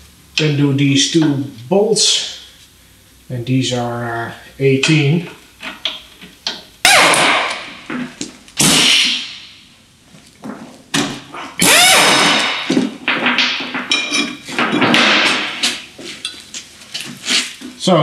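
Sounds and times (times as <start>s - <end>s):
metallic clanks and knocks: 12.2s - 16.4s.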